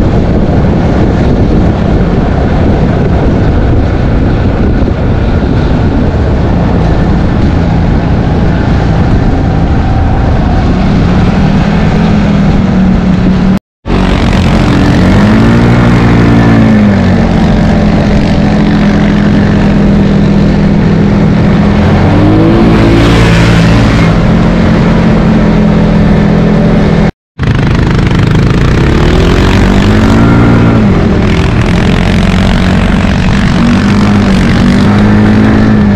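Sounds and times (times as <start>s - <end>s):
atv engine revving: 0.0s - 35.9s
road noise: 0.0s - 35.9s.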